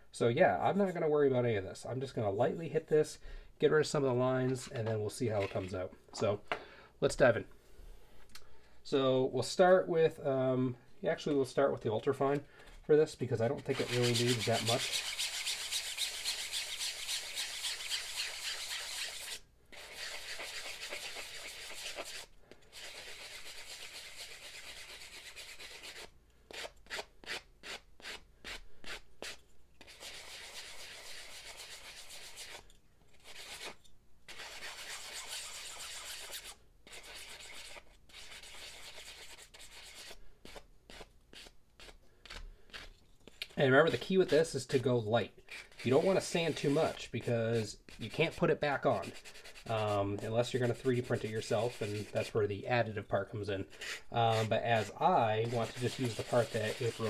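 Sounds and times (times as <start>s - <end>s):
sanding sponge rasping: 13.5s - 26.7s, 27.6s - 32.6s, 33.2s - 42.0s, 45.5s - 52.3s, 53.8s - 57.0s.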